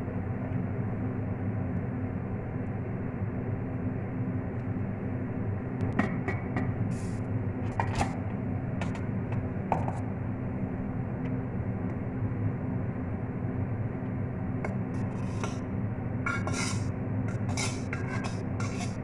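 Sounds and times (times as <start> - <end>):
steady low hum: 0.0 - 19.0
fork scraping metal pot: 15.0 - 15.6, 16.3 - 19.0.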